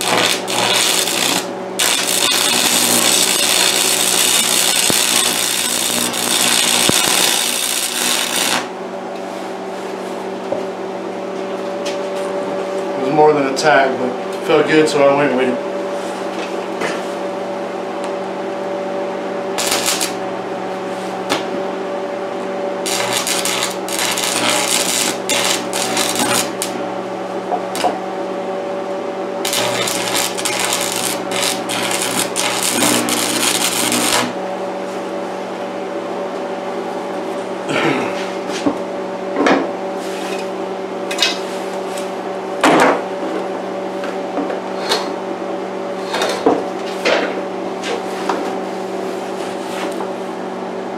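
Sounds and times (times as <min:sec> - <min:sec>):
welding arc crackling: 0:00.0 - 0:08.8, 0:19.6 - 0:20.2, 0:22.8 - 0:26.8, 0:27.6 - 0:28.0, 0:29.4 - 0:34.4
steady electrical hum: 0:00.0 - 0:50.9.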